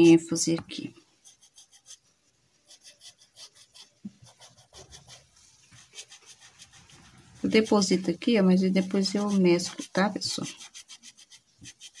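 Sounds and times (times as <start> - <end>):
paintbrush brushing on cloth: 1.0 - 12.0.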